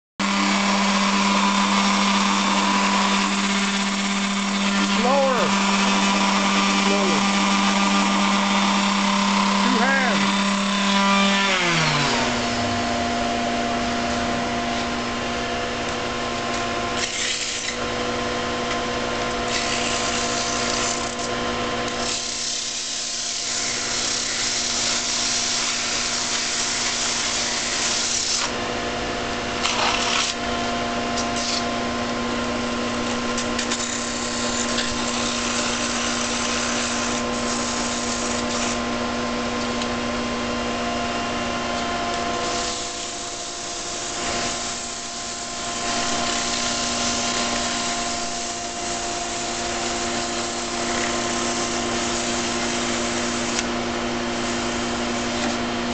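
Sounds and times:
electric sander spinning down: 0:00.2 - 0:13.2
lathe motor humming: 0:00.2 - 0:16.9, 0:30.3 - 0:55.9
sandpaper rasping on wood: 0:19.5 - 0:21.2, 0:22.0 - 0:28.5, 0:33.7 - 0:38.8, 0:42.4 - 0:48.3, 0:49.0 - 0:53.6.

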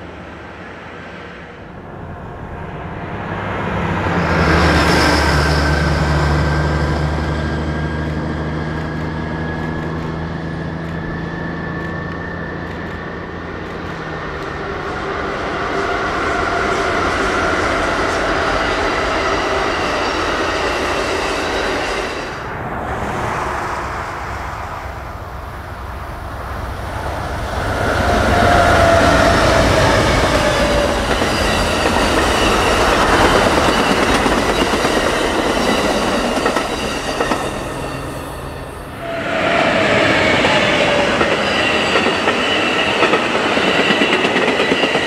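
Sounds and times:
locomotive diesel drone: 0:00.0 - 0:21.0, 0:21.7 - 0:34.6
train wheels rumbling on rails: 0:00.0 - 0:45.0.

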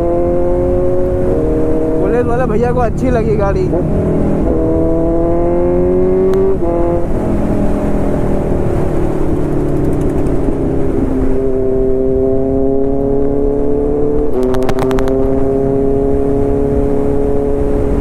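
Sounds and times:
motorcycle engine accelerating: 0:00.0 - 0:18.0.

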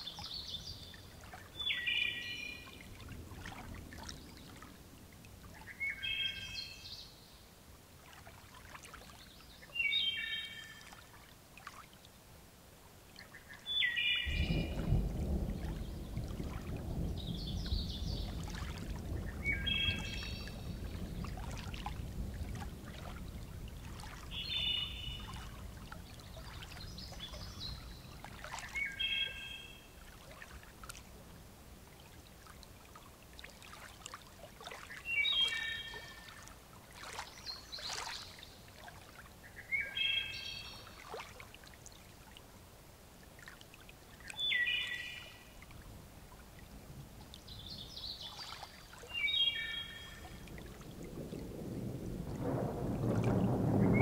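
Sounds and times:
rain patter and drip: 0:00.0 - 0:54.0
distant thunder rumble: 0:14.2 - 0:29.0, 0:50.0 - 0:54.0.

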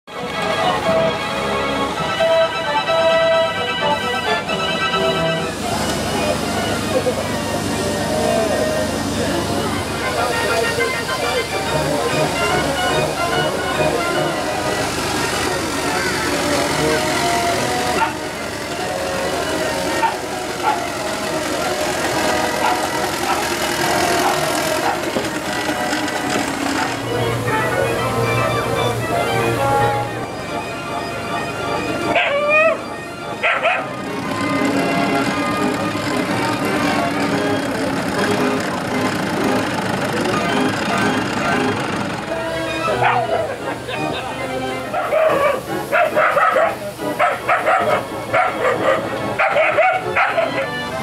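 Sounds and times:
melody over sustained chords: 0:00.1 - 0:44.9
steam engine running: 0:00.1 - 0:51.0.

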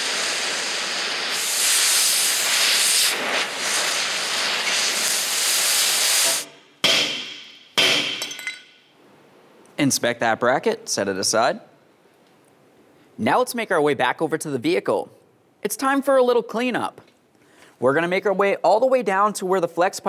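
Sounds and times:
cutting torch hissing: 0:00.0 - 0:06.5
hammer striking metal ringing: 0:06.8 - 0:08.8.

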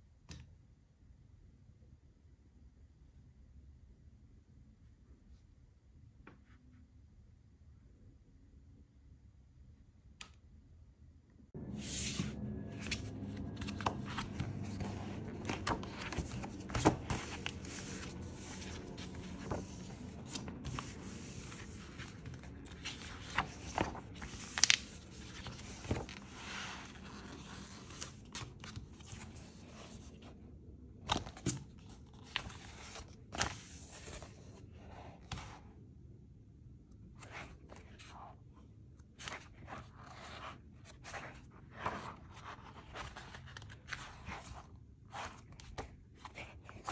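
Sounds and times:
paper pages rustling and sliding: 0:11.6 - 0:30.4, 0:31.1 - 0:35.6, 0:39.1 - 0:46.9.

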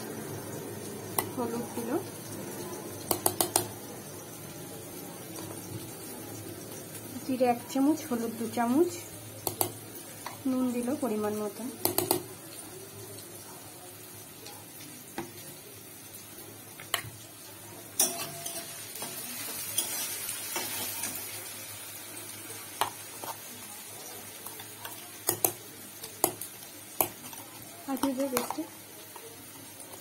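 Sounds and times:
food sizzling in hot oil: 0:00.0 - 0:30.0.

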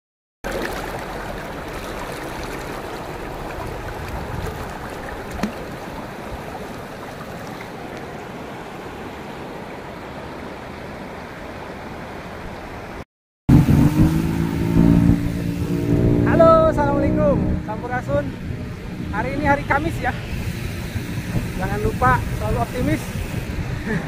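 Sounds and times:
river rushing over stones: 0:00.5 - 0:13.0.

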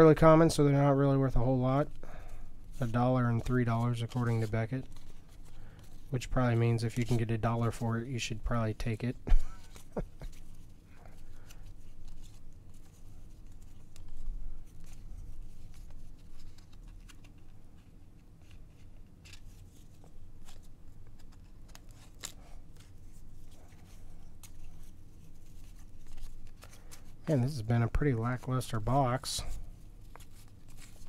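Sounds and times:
cards sliding and clicking: 0:09.6 - 0:27.6.

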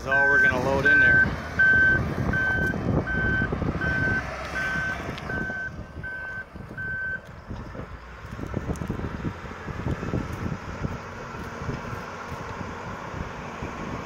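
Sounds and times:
engine low rumble: 0:00.0 - 0:14.0
back-up alarm beeping: 0:00.1 - 0:07.2.

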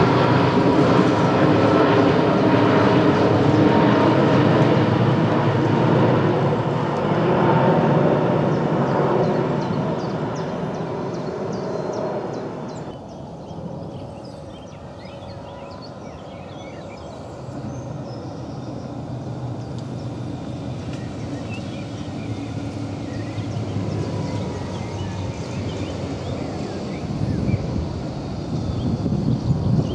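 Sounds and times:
electric tram running on track: 0:16.3 - 0:29.9.

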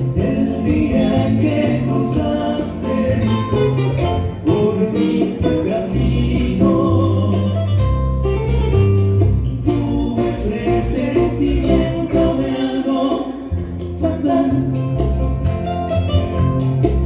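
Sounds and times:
folk dance music with singing: 0:00.0 - 0:17.0
held bass notes: 0:00.0 - 0:17.0.

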